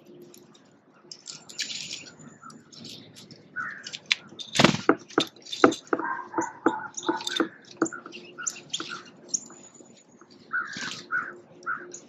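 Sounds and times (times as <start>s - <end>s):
songbirds chirping: 0.0s - 12.0s
sharp knocks: 4.6s - 8.0s.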